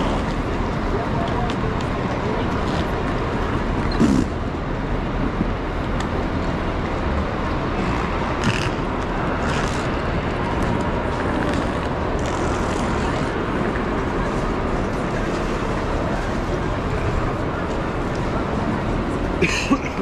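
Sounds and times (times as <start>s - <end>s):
hubbub of people: 0.0s - 20.0s
traffic: 0.0s - 20.0s.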